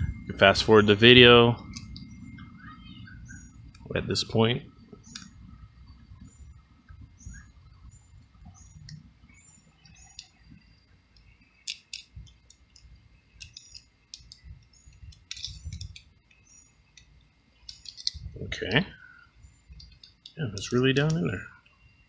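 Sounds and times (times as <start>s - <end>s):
small bird chirping: 1.6s - 3.9s, 4.7s - 22.0s
screwdriver clicking on metal coupling: 15.0s - 16.1s, 17.7s - 18.2s.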